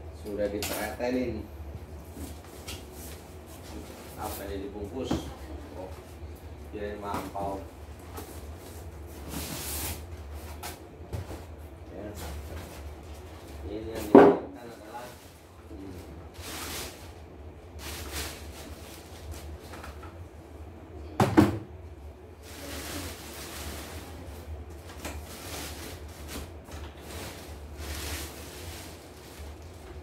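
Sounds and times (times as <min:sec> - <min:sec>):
cardboard and plastic rustling: 0:07.0 - 0:20.1, 0:22.4 - 0:30.0.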